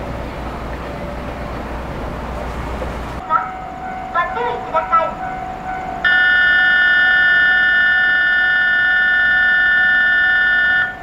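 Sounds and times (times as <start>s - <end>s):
platform warning buzzer: 6.1s - 11.0s.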